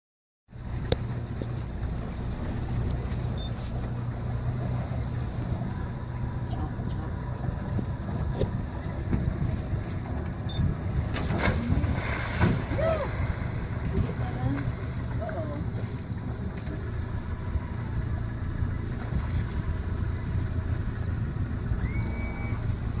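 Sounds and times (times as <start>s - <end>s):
boat motor humming: 0.5s - 23.0s
water splashing: 10.9s - 20.8s.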